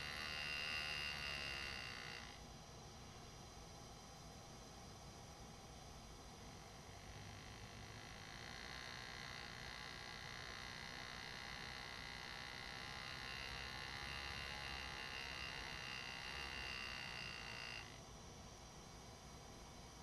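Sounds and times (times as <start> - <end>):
engraving handpiece buzzing: 0.0 - 2.4, 7.1 - 18.0.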